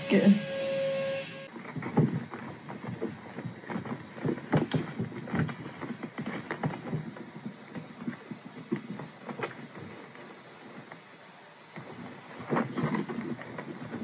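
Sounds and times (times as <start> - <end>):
cat rustling in a handbag: 11.8 - 14.0.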